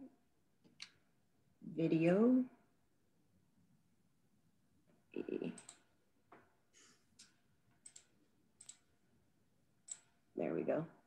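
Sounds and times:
computer clicks: 5.5s - 5.9s, 7.2s - 8.9s, 9.9s - 10.2s.

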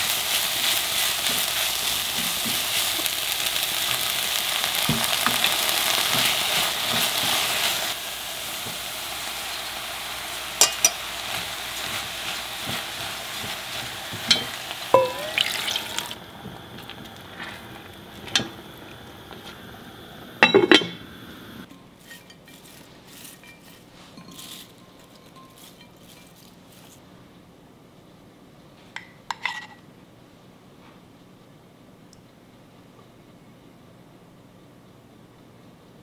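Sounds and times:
food sizzling in a pan: 0.0s - 27.0s
utensil clinking on cookware: 10.6s - 16.2s, 20.4s - 21.0s, 21.7s - 26.6s.

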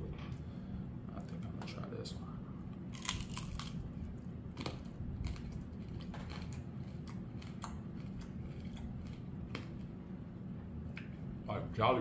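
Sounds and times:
low steady hum: 0.0s - 12.0s
chewing crunchy candy: 2.9s - 3.9s, 4.5s - 9.9s.

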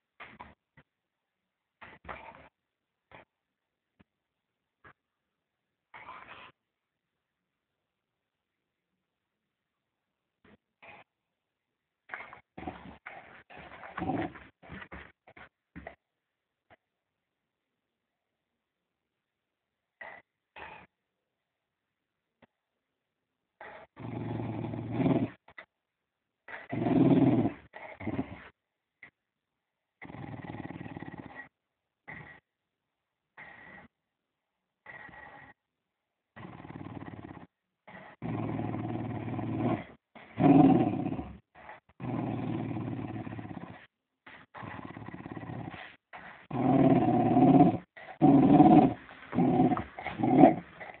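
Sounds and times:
dog growling: 12.1s - 15.9s, 20.0s - 20.9s, 23.6s - 25.6s, 26.5s - 28.5s, 30.0s - 31.5s, 32.1s - 32.5s, 33.4s - 33.9s, 34.8s - 35.6s, 36.3s - 51.0s.

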